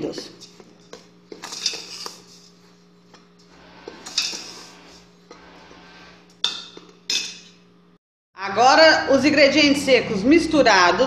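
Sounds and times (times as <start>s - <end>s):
steady low hum: 0.0s - 11.0s
metal spoon scraping a pan: 0.4s - 2.6s, 3.8s - 7.5s.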